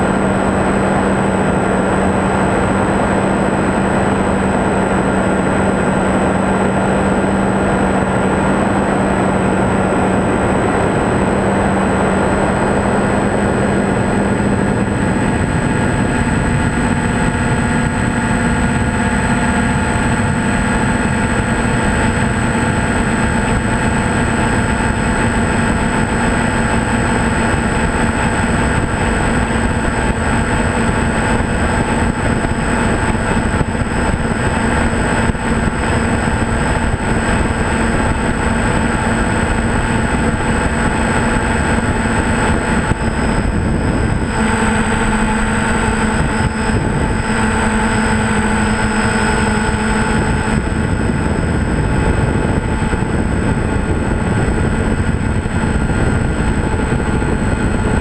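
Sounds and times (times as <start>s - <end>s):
small aircraft engine drone: 0.0s - 58.0s
wind rushing: 0.0s - 58.0s.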